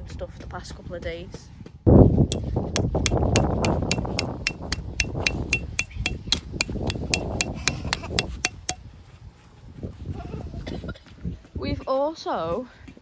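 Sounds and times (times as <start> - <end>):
tent peg being hammered: 2.3 - 8.9.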